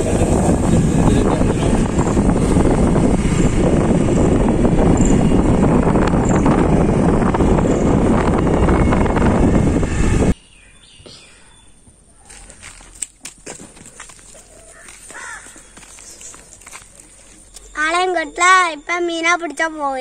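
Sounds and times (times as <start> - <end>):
motor scooter running: 0.0 - 10.4, 12.4 - 18.4
wind rushing on microphone: 0.0 - 10.4.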